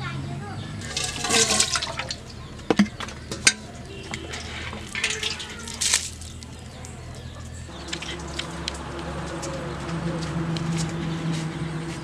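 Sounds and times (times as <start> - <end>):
fish clinking against metal bowl: 0.8 - 8.7
water sloshing: 0.8 - 9.8.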